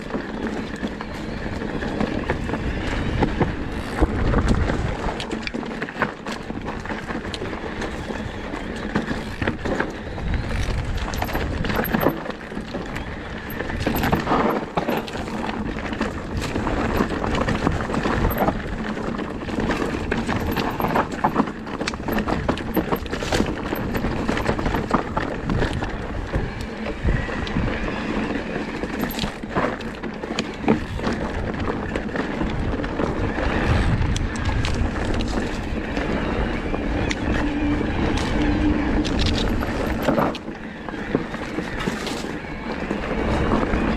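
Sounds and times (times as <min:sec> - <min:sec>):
bike frame and chain rattling: 0:00.0 - 0:43.7
tyres on loose stones: 0:00.0 - 0:43.9
steady rushing noise: 0:09.2 - 0:43.9.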